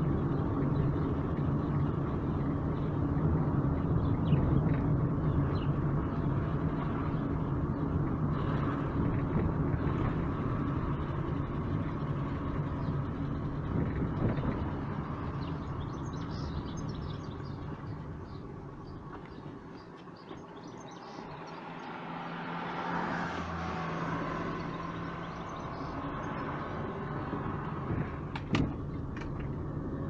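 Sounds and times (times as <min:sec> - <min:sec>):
car engine and tyre noise: 0:00.0 - 0:30.0.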